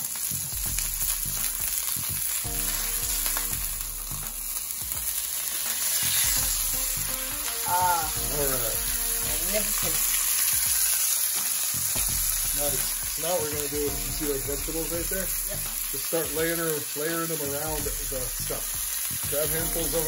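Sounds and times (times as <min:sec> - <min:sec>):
steak sizzling in skillet: 0:00.0 - 0:20.0.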